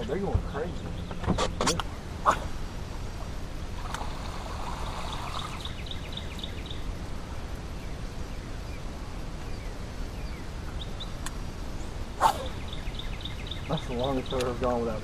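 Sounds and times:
low wind rumble: 0.0s - 15.0s
faint bird chirps: 3.8s - 15.0s.

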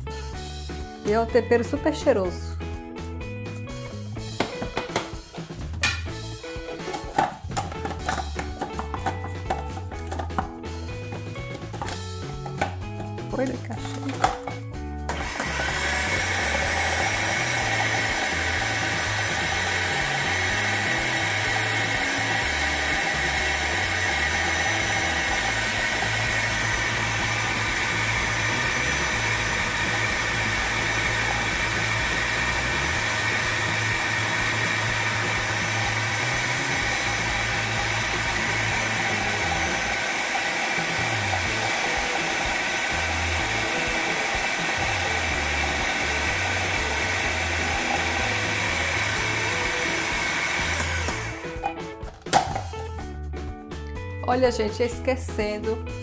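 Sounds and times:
food processor running: 6.9s - 10.4s, 15.1s - 51.7s.

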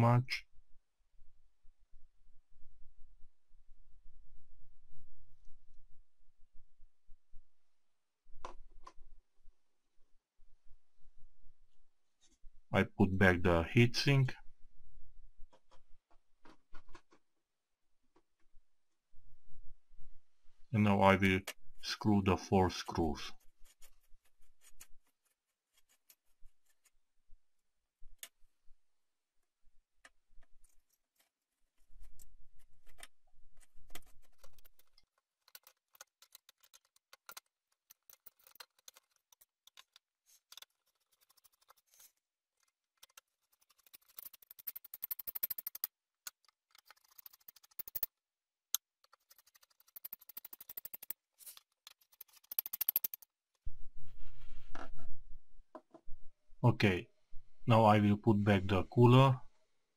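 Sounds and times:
screwdriver clicking and scraping: 32.0s - 48.1s, 48.8s - 53.3s.

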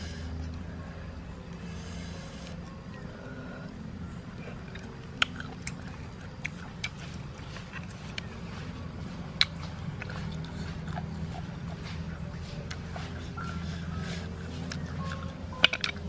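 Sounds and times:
chewing and lip sucking: 4.4s - 16.0s.

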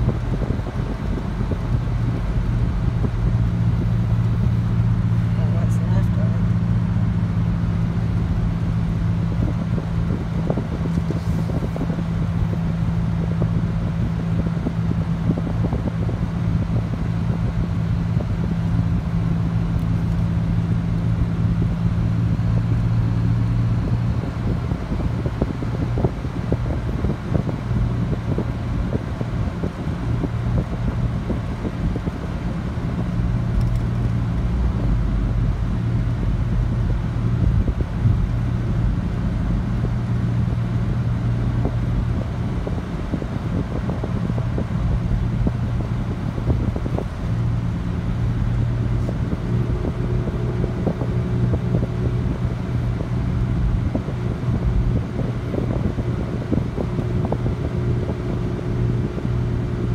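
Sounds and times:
car cabin hum: 0.0s - 59.9s.

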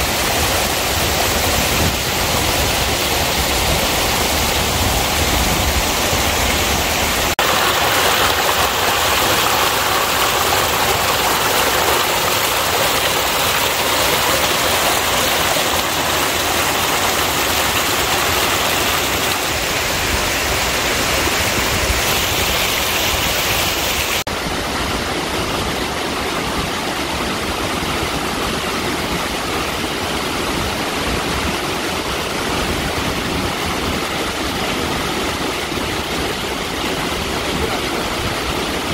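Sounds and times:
stream rushing over rocks: 0.0s - 38.9s.

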